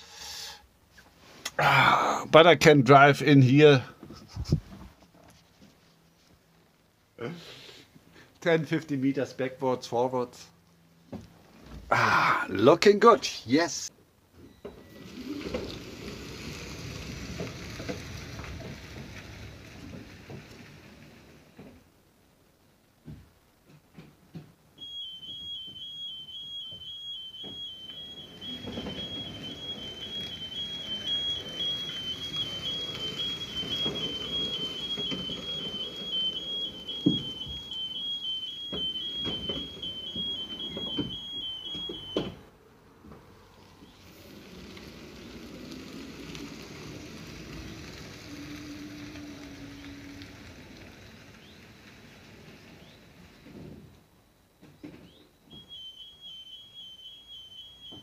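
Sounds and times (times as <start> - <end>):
small electric truck running: 14.8 - 21.6, 24.8 - 42.2, 43.6 - 53.6
two-note electronic warning beeper: 24.8 - 42.3.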